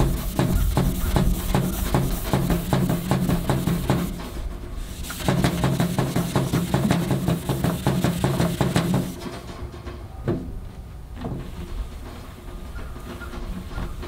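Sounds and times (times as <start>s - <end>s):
scouring pad scrubbing steel: 0.0s - 9.2s.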